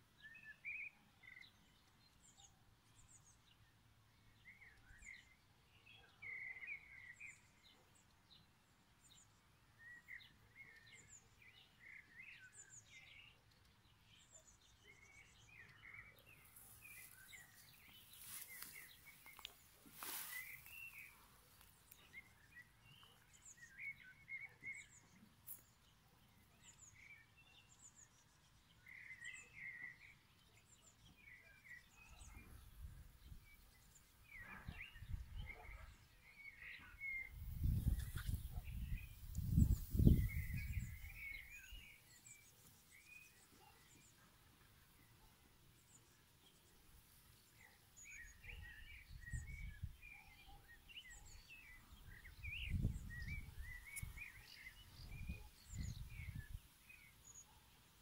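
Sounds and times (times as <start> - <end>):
birds chirping: 14.9 - 25.8, 33.6 - 44.1.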